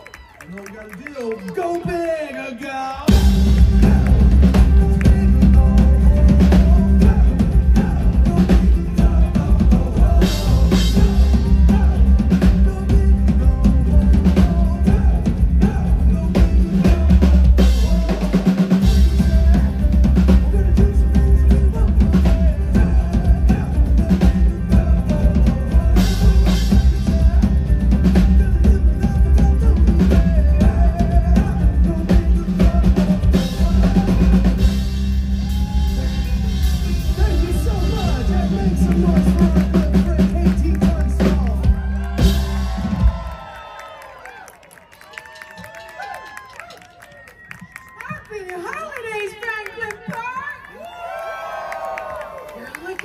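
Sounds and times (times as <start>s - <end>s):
live pop-rock band: 1.8s - 44.0s.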